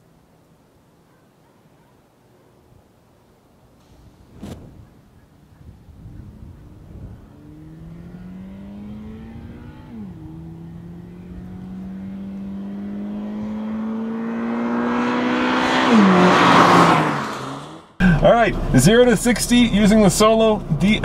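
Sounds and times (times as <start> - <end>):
car engine accelerating: 3.8 - 21.0.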